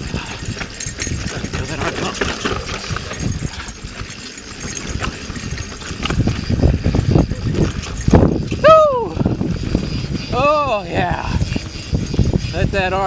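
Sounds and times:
bike tyre rumble on dirt: 0.0 - 13.0
rattling knocks from bike: 0.2 - 8.5.

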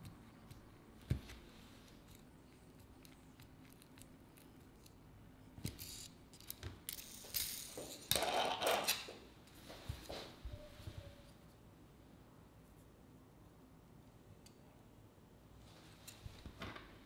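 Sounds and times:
small wheels rolling on tabletop: 6.9 - 9.1.

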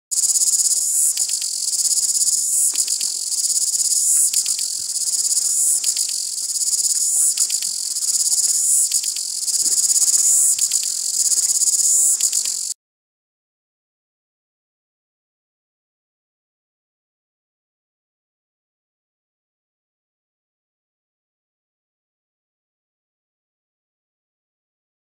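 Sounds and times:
cicada buzzing: 0.1 - 12.8.

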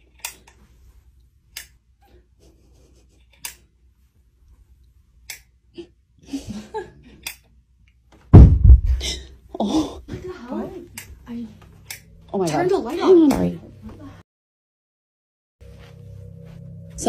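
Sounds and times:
heavy object thudding on floor: 8.3 - 9.1.

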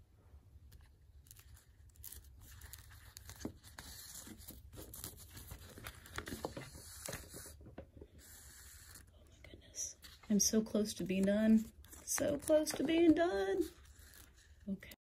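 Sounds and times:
small clicks and scrapes: 0.7 - 9.2
thread rasping through paper: 0.7 - 9.2, 9.8 - 14.9
paper pages shifting: 0.8 - 9.1, 10.0 - 14.7.

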